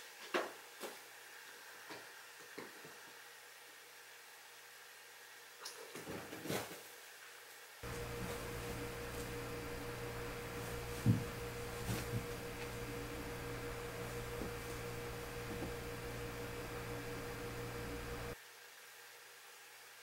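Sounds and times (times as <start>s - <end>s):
electrical mains hum: 7.8s - 18.4s
soft thumps: 7.8s - 18.4s.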